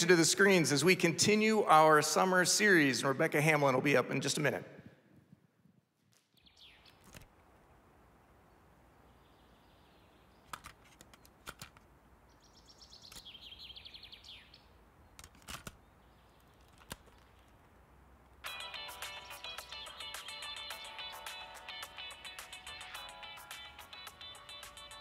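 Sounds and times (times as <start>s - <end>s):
high rapid chirping trill: 18.4s - 25.0s.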